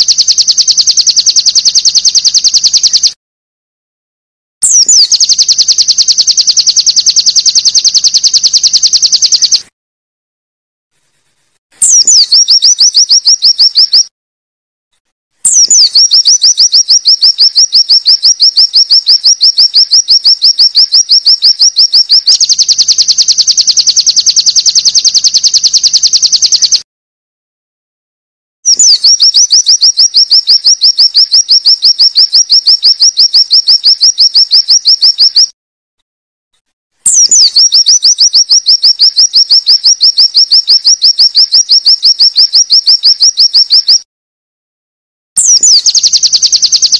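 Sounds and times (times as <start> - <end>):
bird trilling: 11.8 - 14.0, 15.4 - 22.7, 37.1 - 44.0, 45.4 - 46.1.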